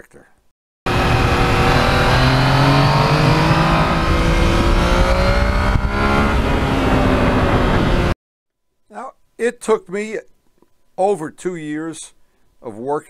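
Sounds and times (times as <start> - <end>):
motorcycle engine accelerating: 0.9 - 8.2.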